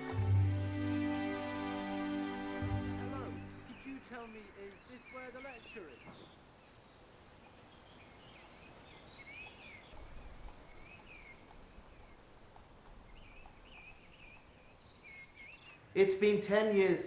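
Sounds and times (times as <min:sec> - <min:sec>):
soft steady hiss: 0:00.0 - 0:17.0
small birds chirping: 0:02.7 - 0:16.0.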